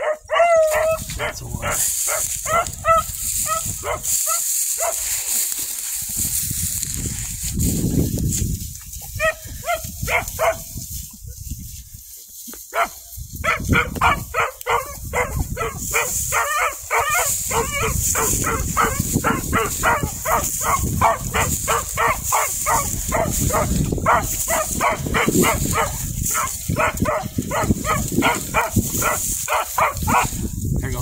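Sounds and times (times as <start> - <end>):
dog barking rapidly: 0.0 - 5.0, 9.2 - 10.7, 12.7 - 30.4.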